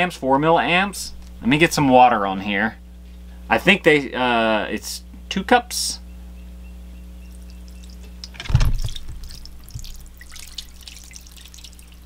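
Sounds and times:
steady low hum: 0.0 - 12.0
water pouring and splashing: 7.7 - 12.0
thump: 8.4 - 9.2.

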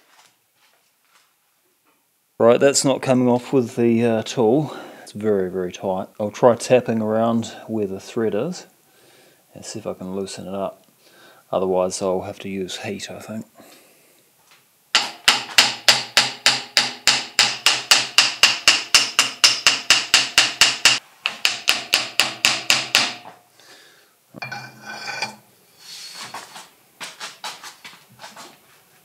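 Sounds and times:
hammer tapping on metal: 15.0 - 23.4.

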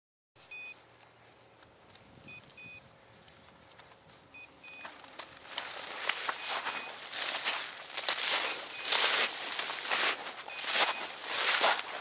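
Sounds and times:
footsteps through dry grass and snow: 0.4 - 12.0
electronic collar double beep: 2.3 - 2.8, 4.4 - 4.9, 8.4 - 9.1, 10.5 - 11.2.

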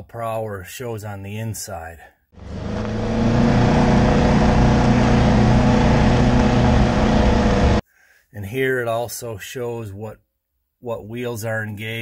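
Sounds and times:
utility vehicle engine running: 2.4 - 7.8.

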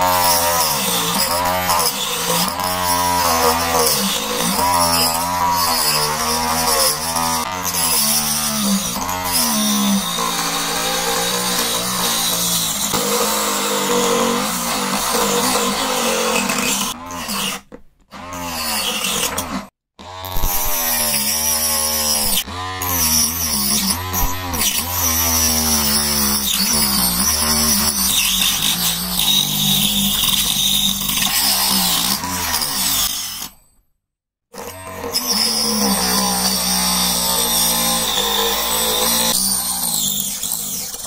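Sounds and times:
cutting disc cutting plastic pipe: 0.0 - 33.6, 34.6 - 41.0
small saw motor whining: 0.0 - 33.6, 34.6 - 41.0.

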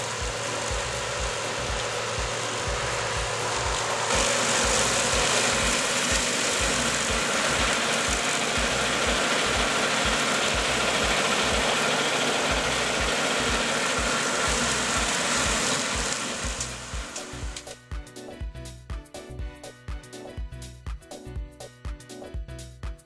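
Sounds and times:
tractor and mower droning: 0.0 - 17.7.

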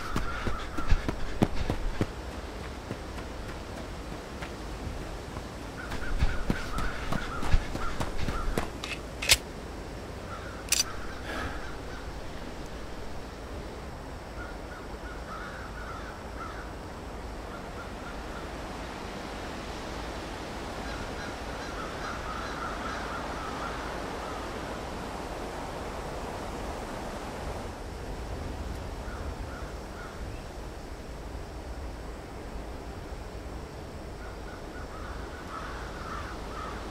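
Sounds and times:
crows cawing faintly: 0.0 - 9.4, 10.2 - 13.3, 14.3 - 18.8, 20.7 - 24.8, 29.0 - 30.4, 34.2 - 36.9
steady background hiss: 0.0 - 36.9.

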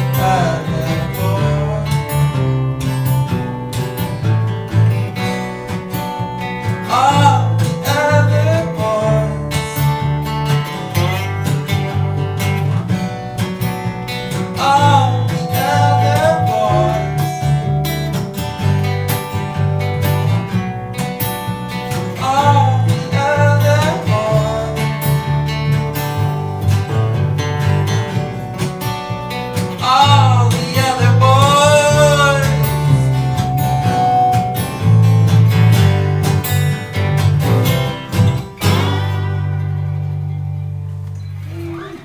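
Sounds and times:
acoustic guitars strumming: 0.0 - 41.8
person singing: 14.6 - 18.2.

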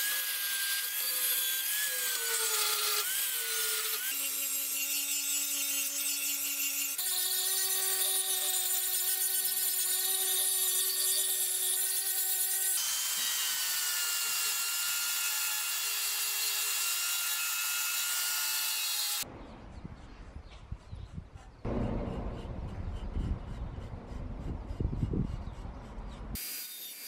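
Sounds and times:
angle grinder grinding metal: 0.0 - 19.2.

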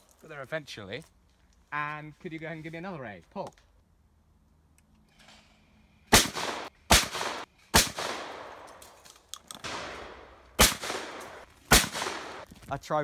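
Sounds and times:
shotgun shots with echo: 6.1 - 8.7, 9.6 - 12.5.

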